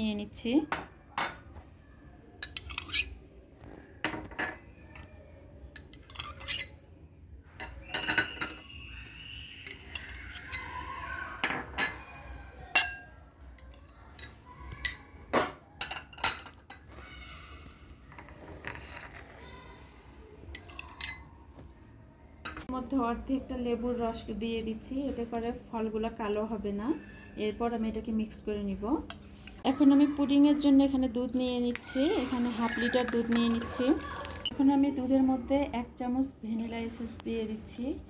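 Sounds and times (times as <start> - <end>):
metal spoon clinking on glass bowl: 5.8 - 6.8, 7.6 - 8.6, 12.7 - 15.0.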